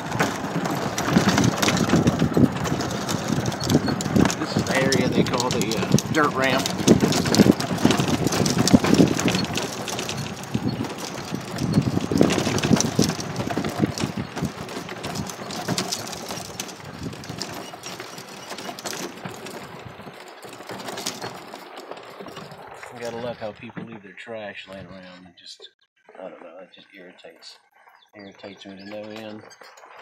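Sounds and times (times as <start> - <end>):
tyres crunching on dirt: 0.0 - 24.0
vehicle body rattling: 0.0 - 24.0, 27.7 - 30.0.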